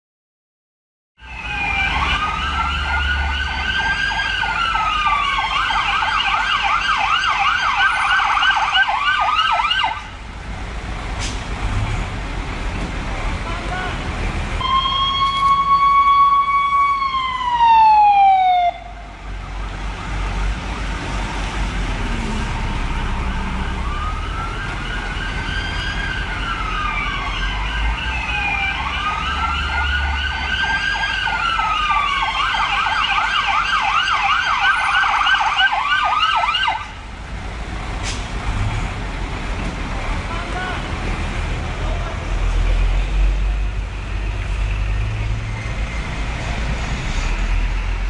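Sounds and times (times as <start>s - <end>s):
emergency vehicle siren: 1.2s - 10.4s, 14.6s - 37.4s
road traffic rumble: 1.2s - 48.0s.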